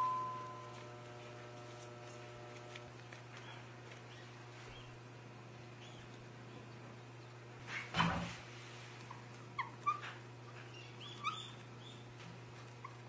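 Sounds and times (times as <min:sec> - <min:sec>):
steady low hum: 0:00.0 - 0:13.0
cling film rustling: 0:00.7 - 0:04.9.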